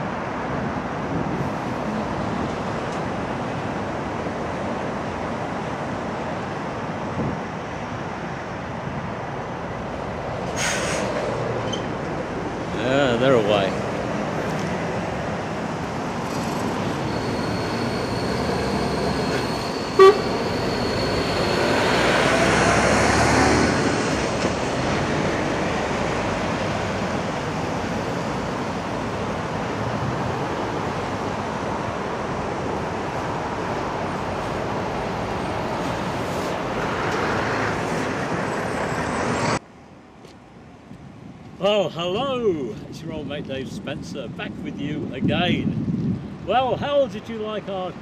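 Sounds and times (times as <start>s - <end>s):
road traffic passing: 0.0s - 48.0s
short horn toot: 19.3s - 21.0s.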